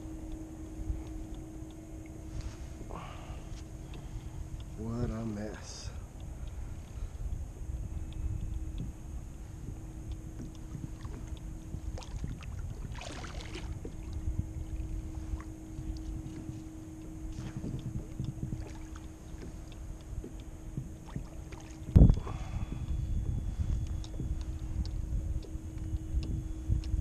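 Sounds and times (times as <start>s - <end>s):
faint steady hum: 0.0s - 27.0s
wind rumble on microphone: 0.0s - 27.0s
water lapping against kayak hull: 5.9s - 27.0s.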